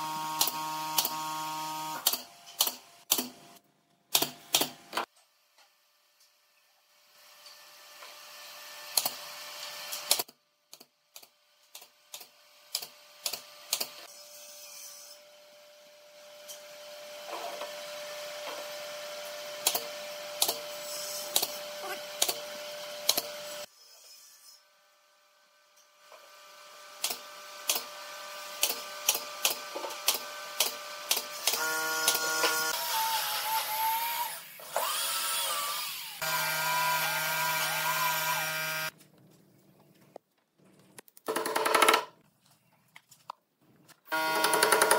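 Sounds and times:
electric power tool motor whine: 30.0s - 38.9s, 44.1s - 44.9s.

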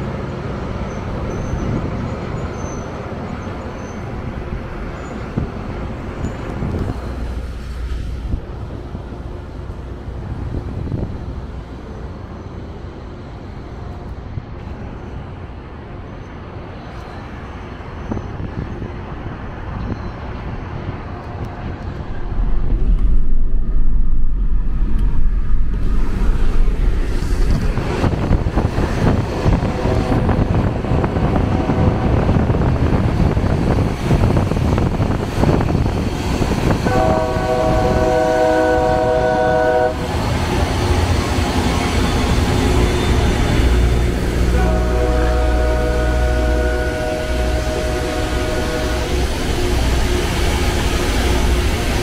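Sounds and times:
rail grinder rushing and rasping: 21.3s - 52.0s
low rumble: 21.5s - 30.2s
train horn chord: 36.8s - 40.1s, 44.4s - 50.2s.

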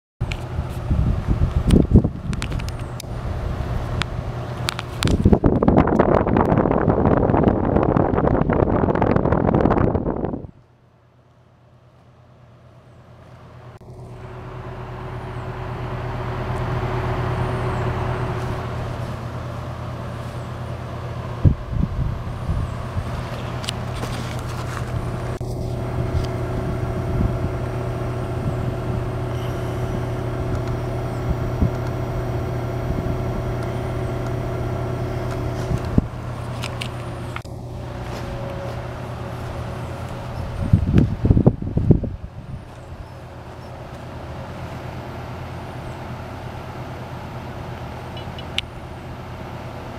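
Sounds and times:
heat pump fan rushing air: 0.2s - 49.9s
compressor steady tones: 13.4s - 49.9s.

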